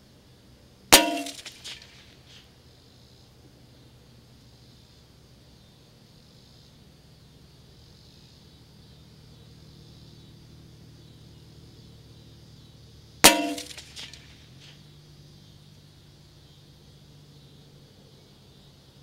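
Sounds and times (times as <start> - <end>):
gunshot echo: 0.9 - 2.0, 13.2 - 14.4
rifle shot crack: 0.9 - 2.1, 13.2 - 14.4.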